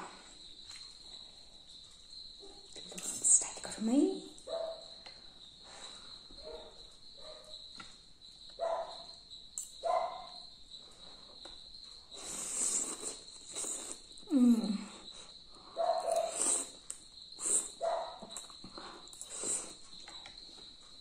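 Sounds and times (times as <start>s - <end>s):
high-pitched insect-like trill: 0.4s - 21.0s
noodles slurped: 12.2s - 14.1s.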